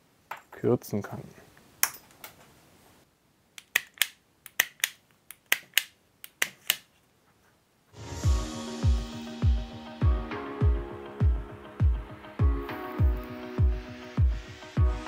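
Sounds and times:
electronic music with thumping beat: 8.2 - 15.0.

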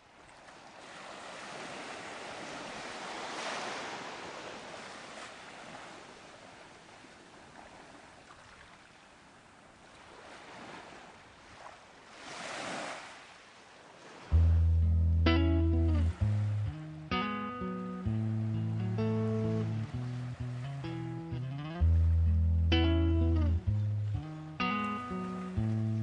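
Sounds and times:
ocean waves breaking: 0.1 - 26.0.

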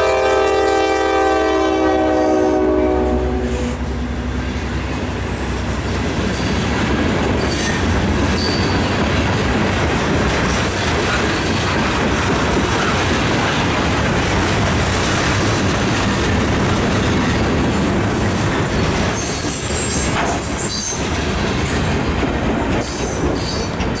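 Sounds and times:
train wheels rumbling on rails: 0.0 - 24.0
high-pitched wheel squeals: 7.4 - 9.0.

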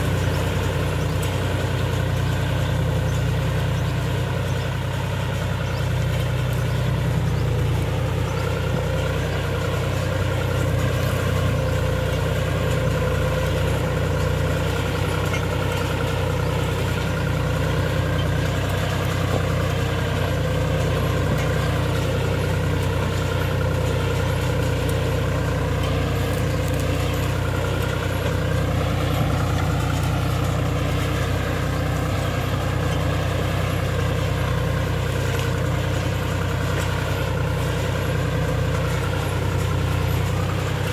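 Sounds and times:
tractor diesel engine running: 0.0 - 40.9.

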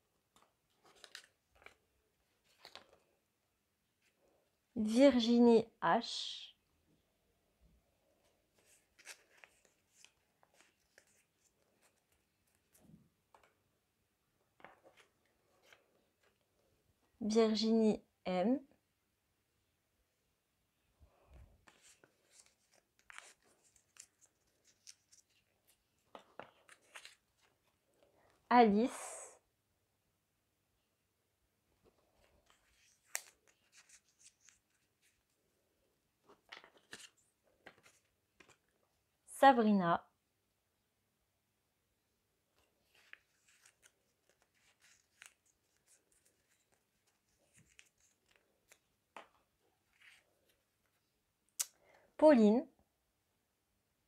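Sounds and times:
paper crinkling and rustling: 0.3 - 3.2, 8.5 - 13.6, 14.5 - 16.5, 21.6 - 28.0, 31.8 - 35.4, 36.2 - 38.8, 42.6 - 51.0.

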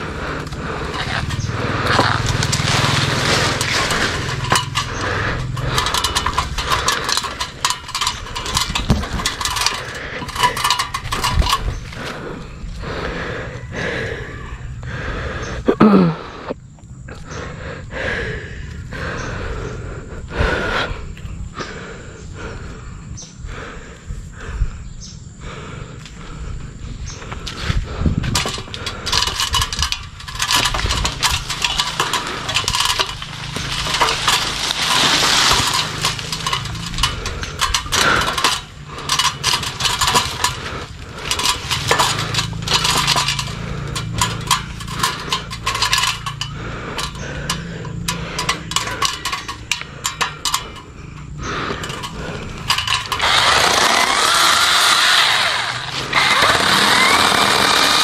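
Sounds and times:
electric chainsaw cutting branches: 0.0 - 11.7, 28.3 - 50.5, 51.6 - 58.0
wood crackling and snapping: 0.0 - 12.3, 28.2 - 58.0.

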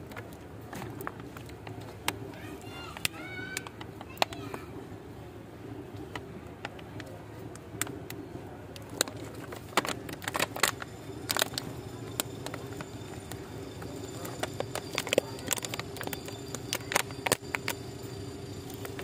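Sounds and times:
low hum: 4.7 - 19.0.

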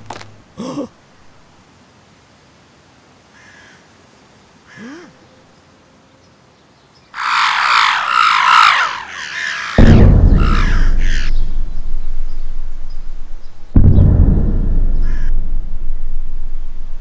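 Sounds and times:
flock of birds cawing: 3.3 - 3.9, 7.1 - 11.5, 15.0 - 15.3.

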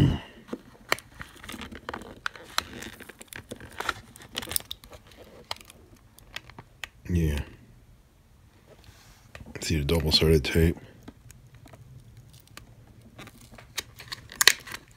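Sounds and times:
plastic case clicking and creaking: 0.5 - 7.0, 11.0 - 14.9.

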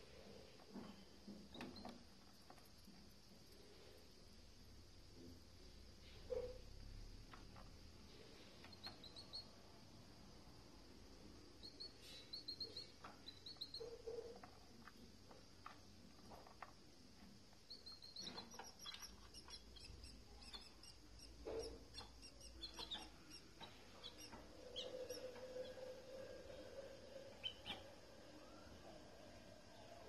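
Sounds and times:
canaries chirping: 8.6 - 9.6, 11.5 - 14.9, 17.6 - 28.6.

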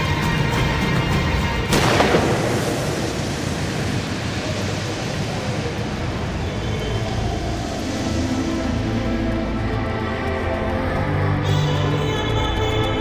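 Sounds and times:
loud rumbling crash: 1.6 - 7.3.

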